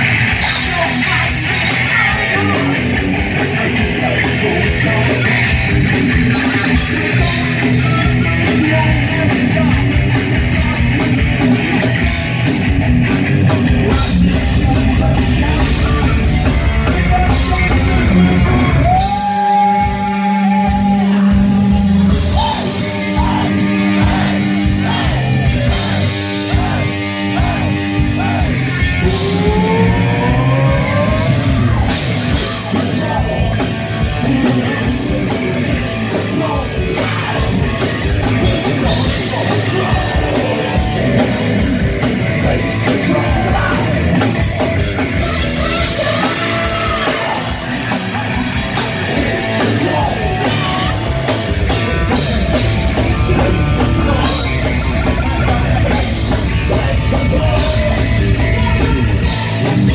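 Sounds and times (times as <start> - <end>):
heavy metal band playing: 0.0 - 59.9
guitar pitch slide: 17.1 - 32.8.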